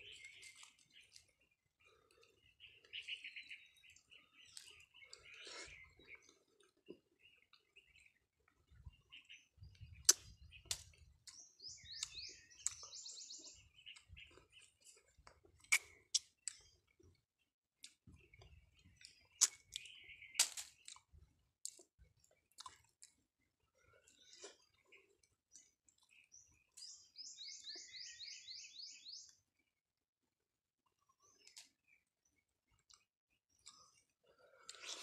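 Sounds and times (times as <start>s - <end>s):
birds chirping: 0.0s - 21.2s, 23.7s - 29.4s
person chewing and mouth smacking: 9.9s - 11.4s, 12.0s - 12.9s, 13.9s - 17.1s, 19.0s - 23.2s, 33.6s - 35.0s.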